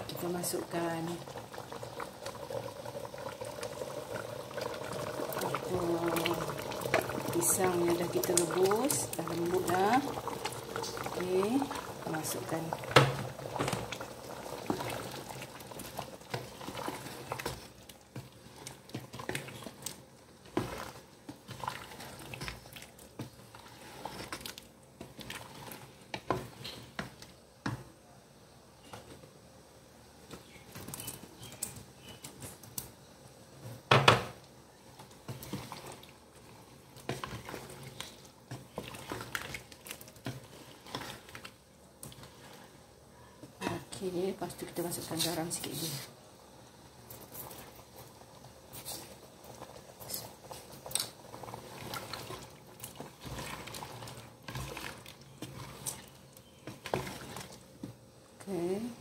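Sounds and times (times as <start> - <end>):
curry bubbling: 0.0 - 27.8, 30.1 - 59.0.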